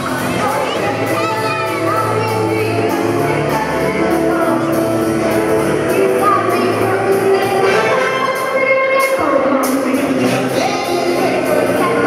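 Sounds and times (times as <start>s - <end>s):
live jazz band playing: 0.0s - 12.0s
woman singing into a microphone: 6.0s - 12.0s.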